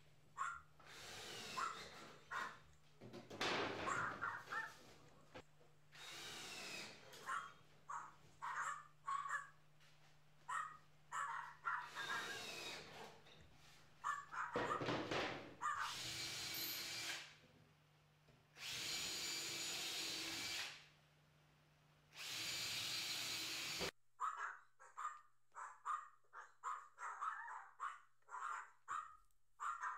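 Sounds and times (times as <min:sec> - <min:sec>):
cordless drill driving screws: 0:00.8 - 0:02.2, 0:06.0 - 0:07.0, 0:12.0 - 0:13.0, 0:15.9 - 0:17.3, 0:18.6 - 0:20.8, 0:22.2 - 0:23.9.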